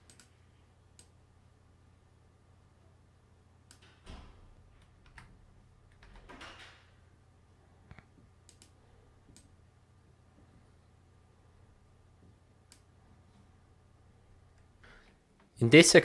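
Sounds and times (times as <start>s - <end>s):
computer keyboard and mouse clicks: 0.0s - 0.3s, 7.9s - 9.6s
low steady hum: 0.0s - 16.0s.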